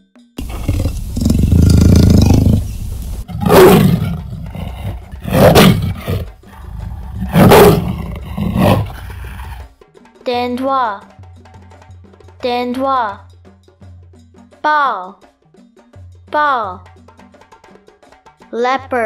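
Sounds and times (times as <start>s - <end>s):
leopard growling: 0.4s - 9.7s
leopard roaring: 0.4s - 9.7s.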